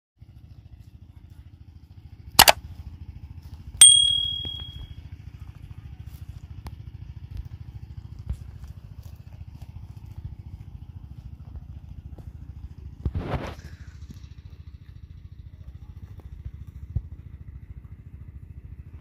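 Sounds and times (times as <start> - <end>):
bell ding: 3.8 - 4.9.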